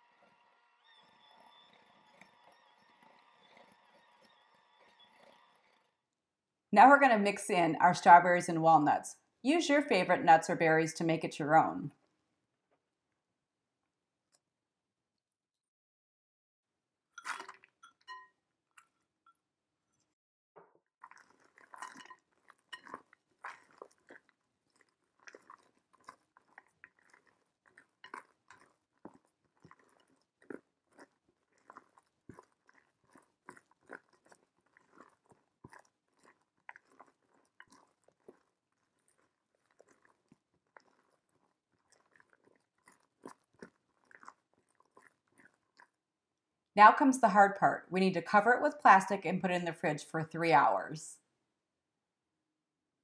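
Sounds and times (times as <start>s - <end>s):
spatula squishing and scraping: 0.0s - 6.0s, 17.2s - 20.2s, 21.0s - 46.1s.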